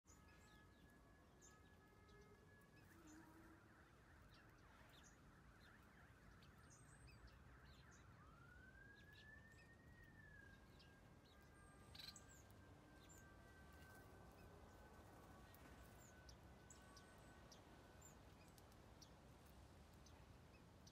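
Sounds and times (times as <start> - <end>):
finches chirping: 10.4 - 19.2.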